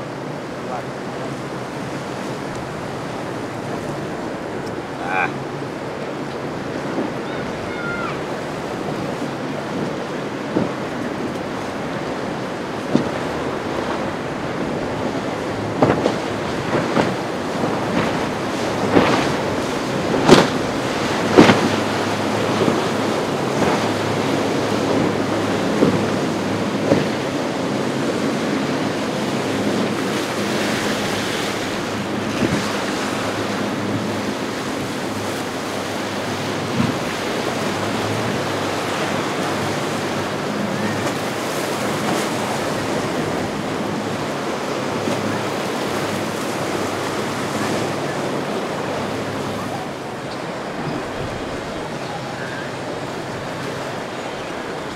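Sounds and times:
ocean waves washing: 0.0 - 54.9
wind on microphone: 0.0 - 54.9.

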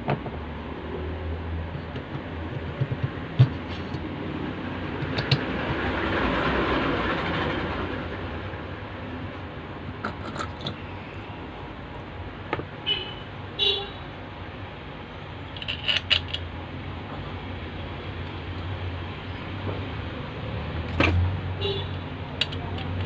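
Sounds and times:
clicks of small parts handled: 15.6 - 16.4, 22.4 - 23.0.

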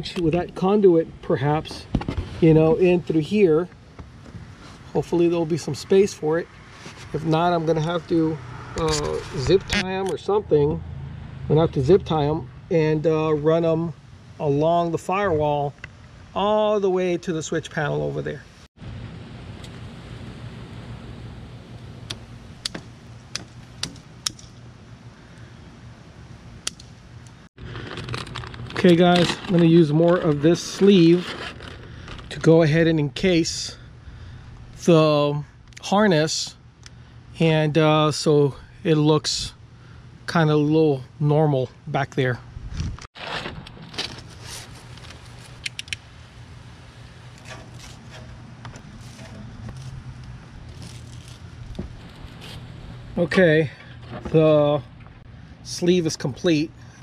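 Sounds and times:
steady low hum: 0.0 - 57.0
plastic rustling and scraping: 1.6 - 3.3, 6.7 - 7.4, 27.6 - 32.9, 42.8 - 45.8, 47.0 - 54.6.

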